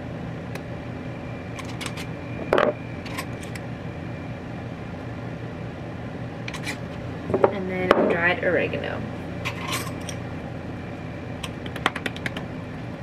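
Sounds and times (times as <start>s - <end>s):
steady low hum: 0.0s - 13.0s
spice shaker ticks and rattles: 11.4s - 12.5s.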